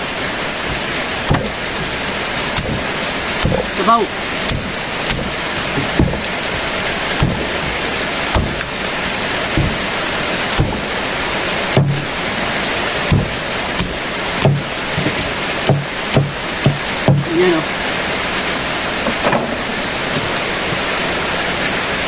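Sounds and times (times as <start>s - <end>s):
heavy rain falling: 0.0s - 22.0s
short dull knocks: 0.6s - 8.8s, 9.5s - 11.0s, 11.7s - 12.1s, 13.1s - 17.3s.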